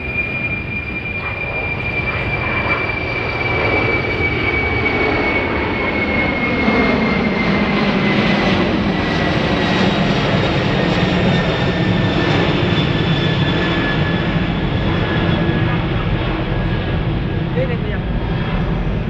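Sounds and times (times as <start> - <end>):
jet engines whining overhead: 0.0 - 19.0
jet rumble: 0.0 - 19.0.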